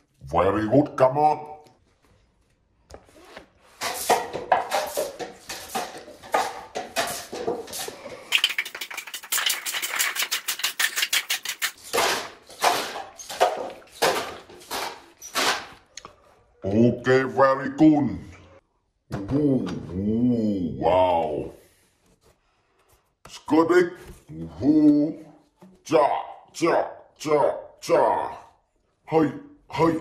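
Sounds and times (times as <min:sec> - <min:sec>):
paper cups clattering down: 0:03.7 - 0:15.9.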